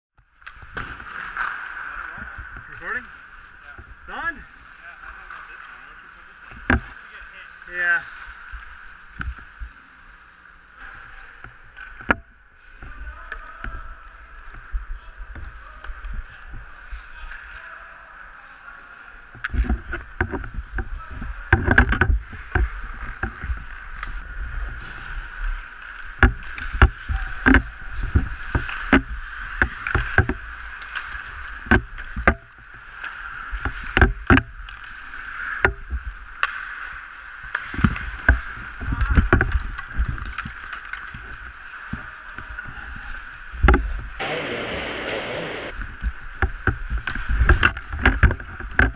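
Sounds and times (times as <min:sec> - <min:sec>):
hockey sticks and puck clacking: 0:00.4 - 0:03.9, 0:19.2 - 0:42.8, 0:43.8 - 0:48.9
steady hum: 0:44.2 - 0:45.7
skates scraping ice: 0:44.2 - 0:45.8.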